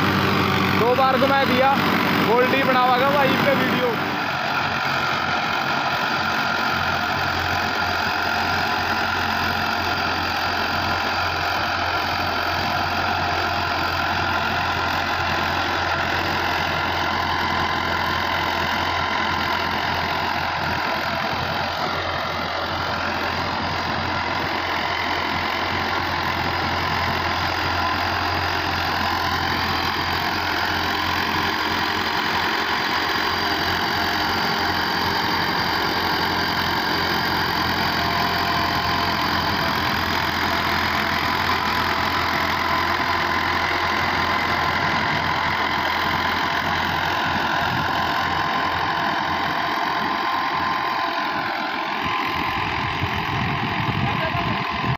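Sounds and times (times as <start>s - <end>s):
tractor diesel engine under load: 0.0s - 54.9s.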